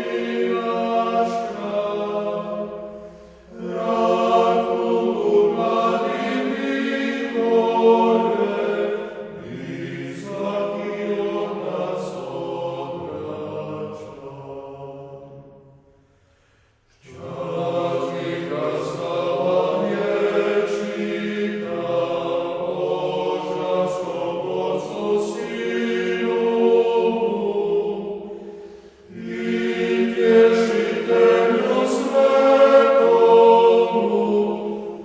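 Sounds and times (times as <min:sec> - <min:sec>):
singer breathing: 0:02.9 - 0:03.5, 0:15.9 - 0:17.0, 0:28.3 - 0:29.1.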